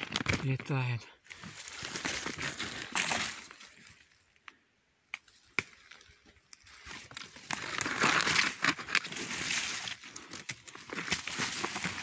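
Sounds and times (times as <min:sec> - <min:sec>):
footsteps rustling through dry leaves: 0:01.4 - 0:04.1, 0:06.7 - 0:12.0.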